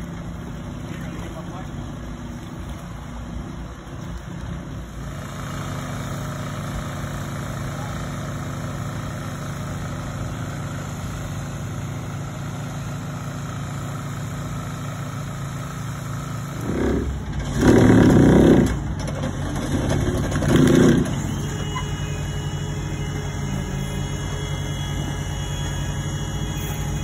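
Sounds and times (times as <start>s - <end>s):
excavator diesel engine running: 0.0s - 27.0s
louder engine surges: 15.1s - 18.9s.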